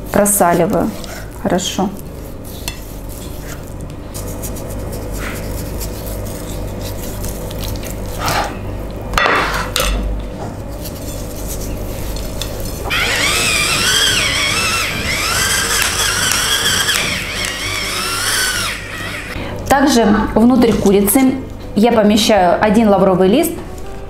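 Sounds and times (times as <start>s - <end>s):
electric pepper grinder whirring: 12.2s - 19.4s.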